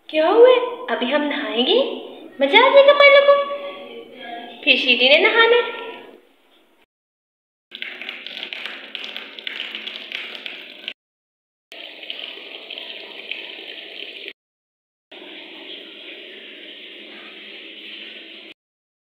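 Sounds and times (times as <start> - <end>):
tap water pouring into tub: 7.7 - 11.0, 11.7 - 14.4, 15.1 - 18.6.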